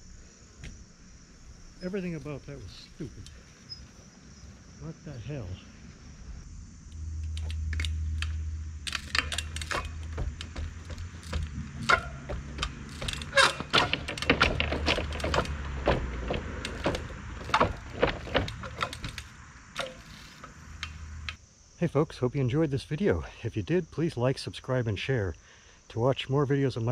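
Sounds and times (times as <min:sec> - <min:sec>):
steady low rumble: 0:00.0 - 0:19.8
bike chain and frame rattling: 0:07.1 - 0:21.4
bike tyres knocking on wood: 0:08.9 - 0:21.4.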